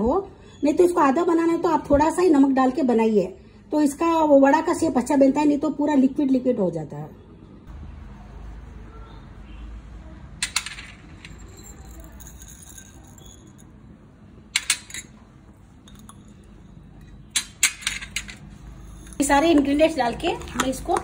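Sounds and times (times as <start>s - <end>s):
glass bowls clinking: 10.5s - 14.0s, 14.6s - 21.0s.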